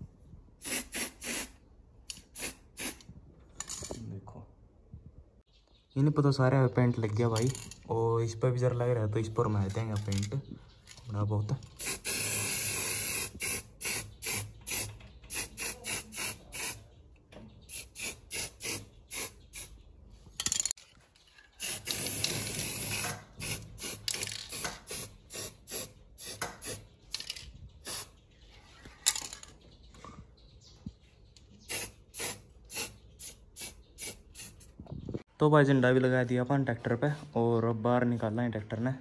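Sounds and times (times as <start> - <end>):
spray can hissing: 0.6 - 3.0, 11.8 - 16.8, 17.7 - 19.7, 21.6 - 26.8, 27.8 - 28.1, 31.7 - 34.7.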